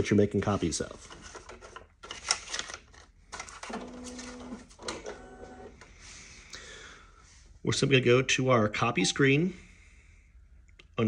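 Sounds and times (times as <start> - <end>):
paper rustling: 0.4 - 4.5
higher copier whir: 3.3 - 5.9
copier mechanism whirring: 3.4 - 5.8.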